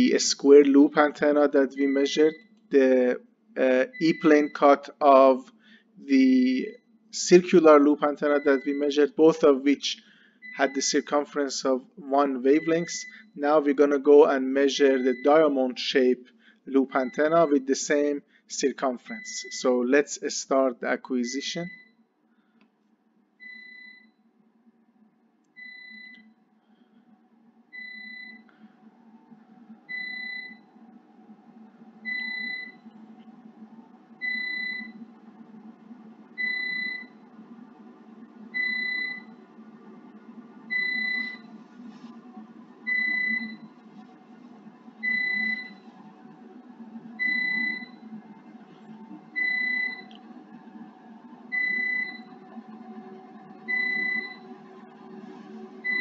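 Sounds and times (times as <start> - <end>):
low steady hum: 0.0 - 56.0
electronic beeps: 1.0 - 2.4, 3.8 - 4.8, 8.0 - 9.0, 12.4 - 13.5, 14.8 - 15.5, 29.9 - 30.7, 32.0 - 32.8, 34.2 - 35.0, 36.4 - 37.2, 38.5 - 39.4, 40.7 - 41.5, 42.8 - 43.7, 45.0 - 45.8, 47.2 - 48.0, 49.4 - 50.2, 51.5 - 52.4, 53.7 - 54.4.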